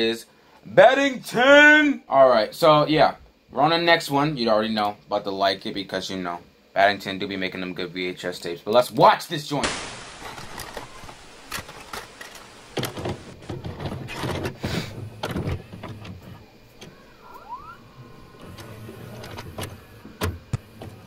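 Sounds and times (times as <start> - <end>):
motor whirr: 10.2 - 21.0
mechanical clicks and clunks: 11.5 - 17.1, 18.3 - 21.0.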